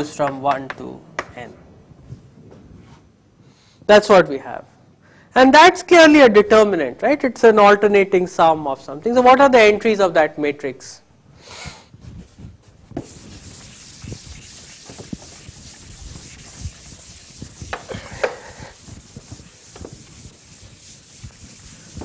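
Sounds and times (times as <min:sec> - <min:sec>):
eraser rubbing on chalkboard: 0:13.0 - 0:22.0.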